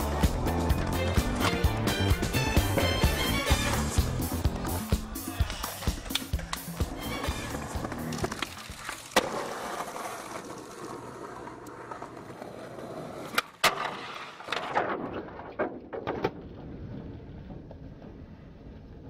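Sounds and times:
skateboard clacking on pavement: 0:00.0 - 0:16.5
skateboard wheels rolling on concrete: 0:00.0 - 0:19.0.

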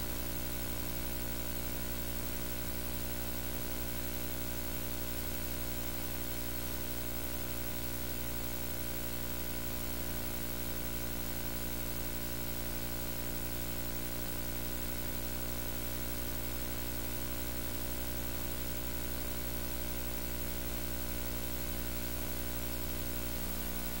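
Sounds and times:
electrical hum: 0:20.2 - 0:24.0.

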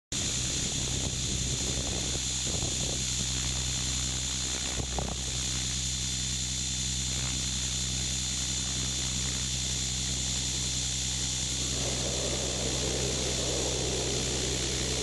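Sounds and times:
drone propellers whining: 0:08.4 - 0:15.0.

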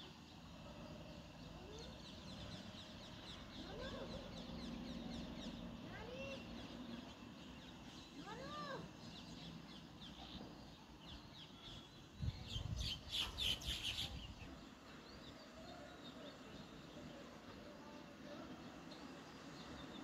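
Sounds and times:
sparrows chirping: 0:00.0 - 0:20.0.

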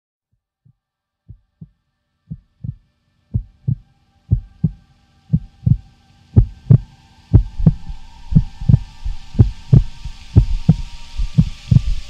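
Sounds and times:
heartbeat thumps: 0:01.3 - 0:02.8, 0:03.4 - 0:05.8, 0:06.4 - 0:12.0
faint steady hum: 0:01.3 - 0:12.0
rising hiss: 0:02.5 - 0:12.0.

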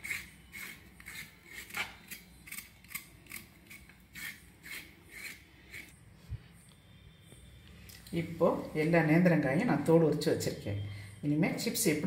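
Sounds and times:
knife scraping plantain: 0:00.0 - 0:06.0.

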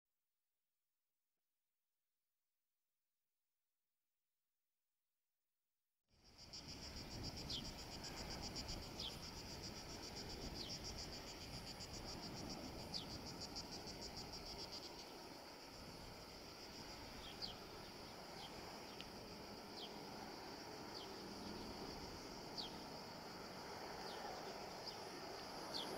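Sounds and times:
insects pulsing buzz: 0:06.1 - 0:25.9.

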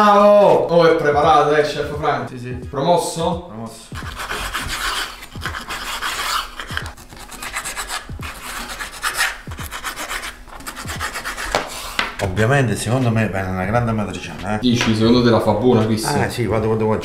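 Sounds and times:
knife cutting through fat: 0:04.0 - 0:12.0.

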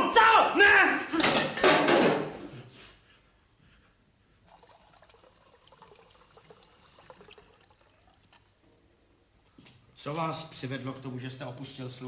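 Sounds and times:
faint liquid pouring: 0:04.4 - 0:08.6.

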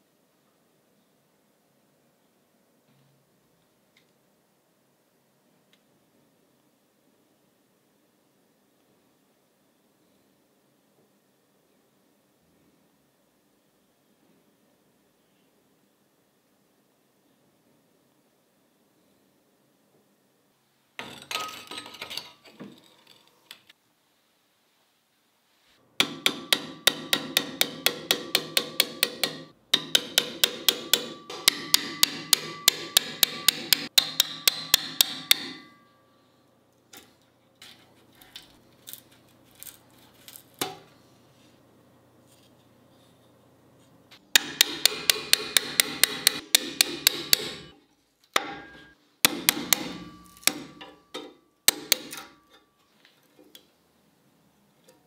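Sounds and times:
hammer striking metal: 0:26.0 - 0:36.1, 0:44.3 - 0:47.8, 0:48.4 - 0:52.7.

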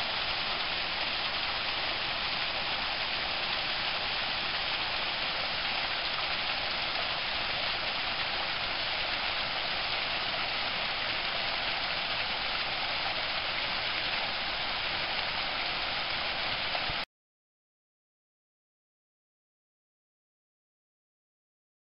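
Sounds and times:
stream splashing over rocks: 0:00.0 - 0:17.0.

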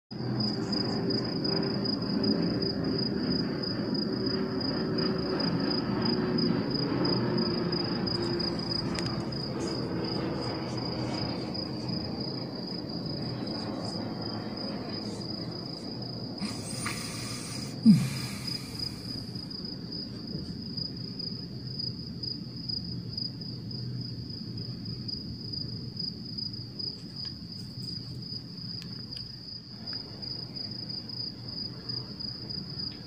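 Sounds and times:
low rumbling background: 0:00.2 - 0:20.9
insects trilling: 0:00.2 - 0:33.0
burst of hiss: 0:16.4 - 0:19.4.

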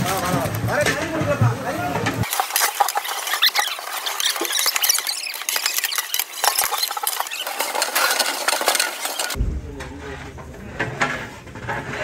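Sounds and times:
metal ladles scraping cooking pots: 0:00.0 - 0:09.4.

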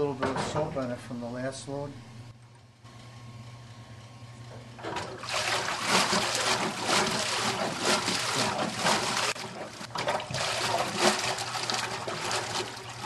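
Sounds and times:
water churning in washer tub: 0:04.7 - 0:13.0.

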